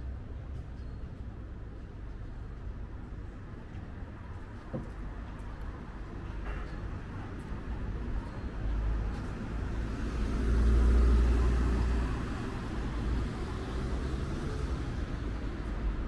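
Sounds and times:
street background noise: 0.0 - 16.0
vehicle passing: 9.7 - 15.4.

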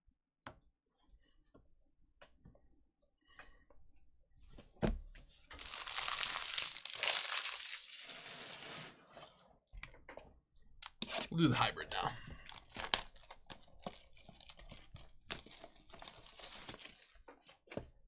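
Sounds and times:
plastic shrink wrap crinkling: 5.5 - 9.0, 12.5 - 17.7.

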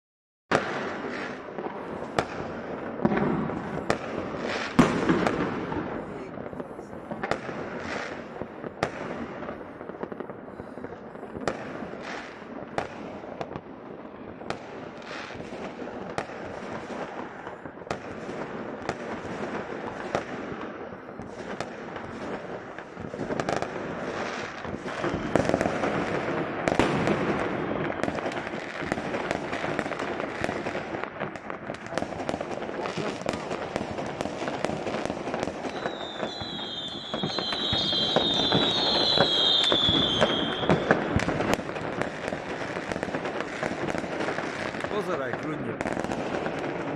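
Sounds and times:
fireworks bangs and crackling: 0.5 - 46.9
whistling rockets: 23.4 - 30.7, 35.4 - 43.6.

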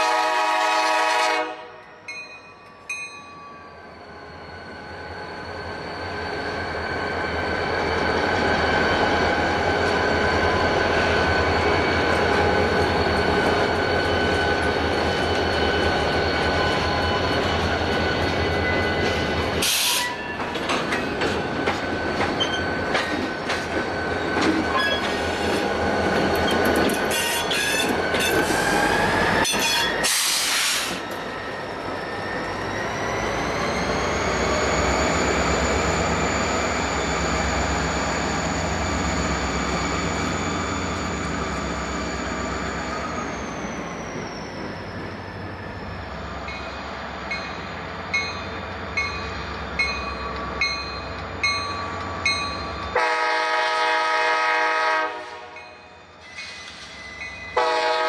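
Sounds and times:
locomotive air horn: 0.0 - 1.8, 52.9 - 55.6, 57.6 - 58.0
diesel locomotive running: 0.0 - 58.0
train wheels squealing and clattering: 1.8 - 53.0, 55.6 - 57.8
bell ringing: 2.0 - 3.9.

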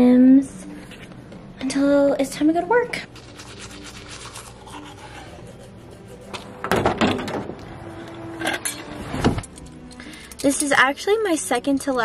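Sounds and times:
toothbrush scrubbing: 3.1 - 6.6.

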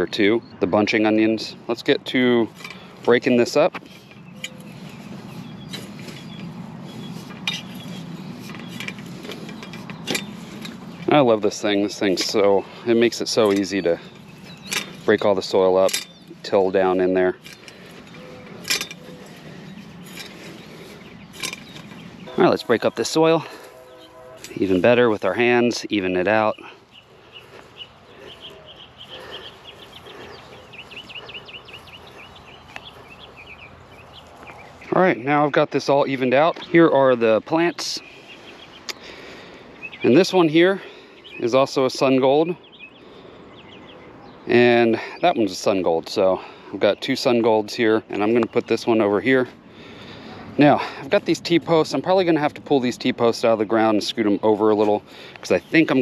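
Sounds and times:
songbird chirping: 0.0 - 56.0
hand tiller scraping dry soil: 2.4 - 26.5
metal tines clinking: 2.5 - 26.8.

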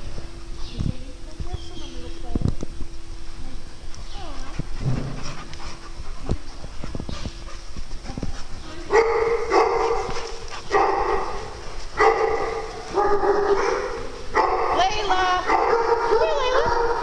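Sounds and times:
dog barking: 8.9 - 17.0.

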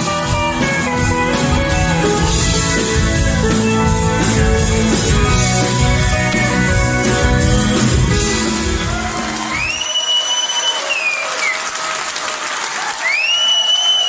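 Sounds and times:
live rock band playing: 0.0 - 9.9.

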